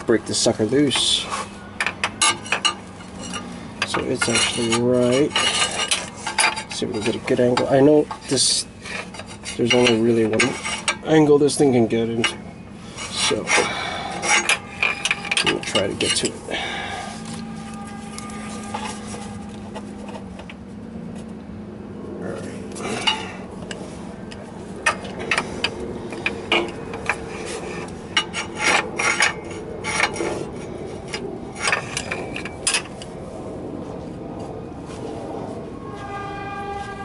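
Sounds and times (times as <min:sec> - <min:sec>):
metal tools clinking: 0:01.8 - 0:20.2, 0:22.7 - 0:30.4
low hum: 0:12.0 - 0:37.0.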